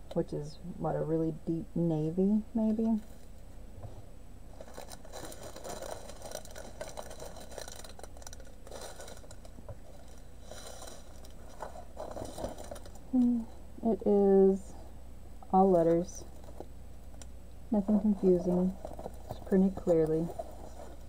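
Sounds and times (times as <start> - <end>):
plastic packaging crinkling: 4.5 - 13.2, 18.2 - 21.0.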